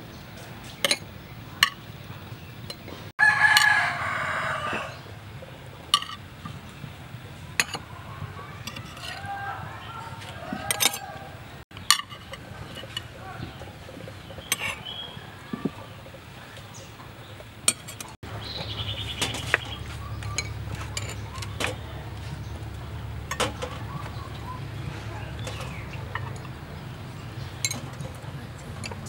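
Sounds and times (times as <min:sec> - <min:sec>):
spoons clinking on ceramic bowls: 0:05.9 - 0:06.2, 0:07.6 - 0:07.9, 0:08.6 - 0:09.2, 0:10.5 - 0:11.1, 0:11.8 - 0:13.1, 0:14.4 - 0:14.9, 0:20.1 - 0:21.8, 0:25.4 - 0:26.6, 0:27.6 - 0:28.2.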